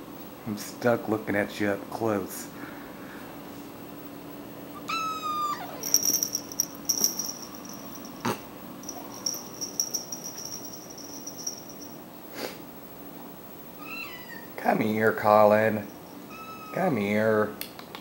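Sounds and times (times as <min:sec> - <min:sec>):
cat meowing: 0:04.8 - 0:05.9, 0:13.8 - 0:14.6, 0:16.3 - 0:16.9
light high jingling and ticking: 0:05.6 - 0:08.2, 0:08.8 - 0:12.0.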